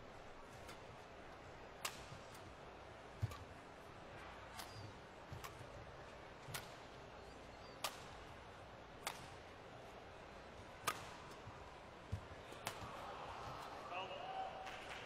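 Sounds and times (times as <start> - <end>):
quiet arena hall noise: 0.0 - 15.0
racket striking shuttlecock: 0.5 - 1.0, 1.7 - 9.6, 10.7 - 13.8.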